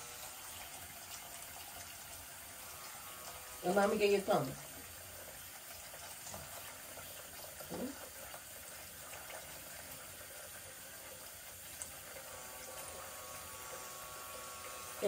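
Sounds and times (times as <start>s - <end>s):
tap running into sink: 6.0s - 8.5s.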